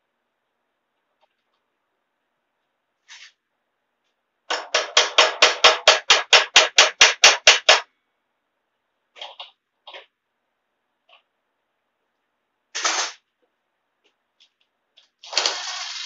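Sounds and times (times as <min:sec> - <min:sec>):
hammer tapping on metal: 0:04.5 - 0:07.9.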